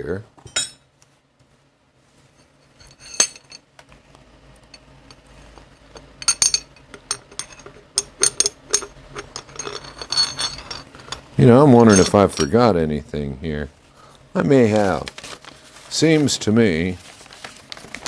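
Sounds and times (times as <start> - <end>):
metal rod clinking: 2.7 - 3.6, 6.0 - 12.6.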